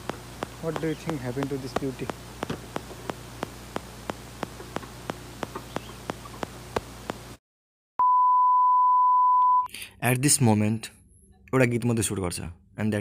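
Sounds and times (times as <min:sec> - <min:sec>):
faint hum: 0:00.0 - 0:07.4
regular ticking clicks: 0:00.0 - 0:07.4.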